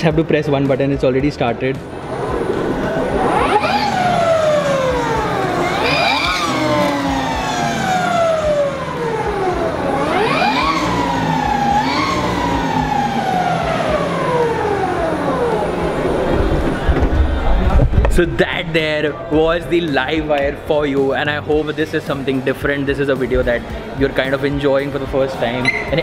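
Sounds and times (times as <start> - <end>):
electric motorcycle motor whining: 1.9 - 16.9.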